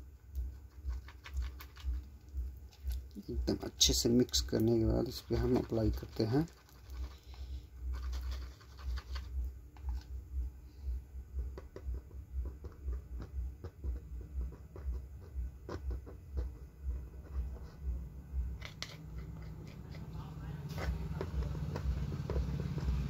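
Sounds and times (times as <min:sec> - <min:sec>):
thin tool scratching and clicking: 0:18.5 - 0:20.1.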